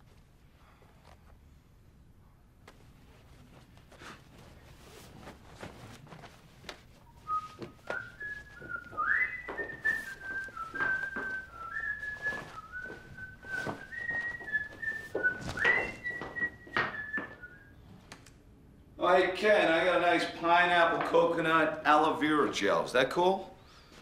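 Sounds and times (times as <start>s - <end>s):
clothes rustling and knocking: 2.6s - 17.5s
man whistling a tune: 7.2s - 17.8s.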